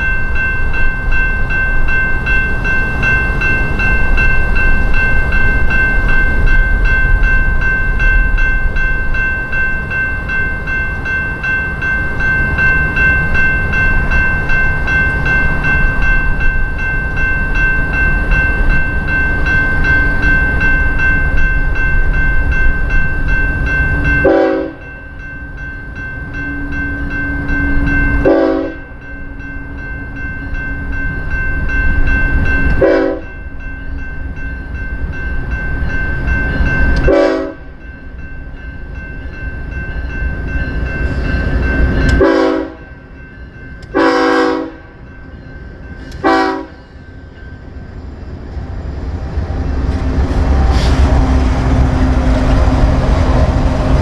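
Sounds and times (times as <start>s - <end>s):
passing train rumble: 0.0s - 54.0s
locomotive air horn: 24.2s - 24.8s, 28.2s - 28.8s, 32.8s - 33.2s, 37.1s - 37.6s, 42.2s - 42.8s, 44.0s - 44.8s, 46.2s - 46.8s.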